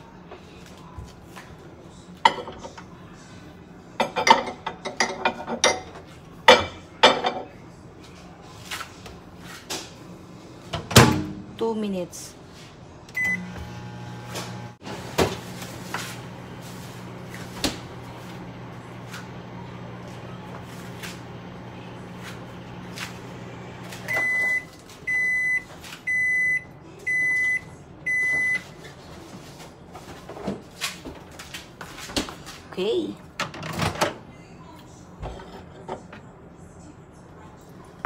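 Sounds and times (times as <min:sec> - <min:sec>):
microwave running hum: 0:12.8 - 0:29.2
microwave beeping: 0:13.1 - 0:28.7.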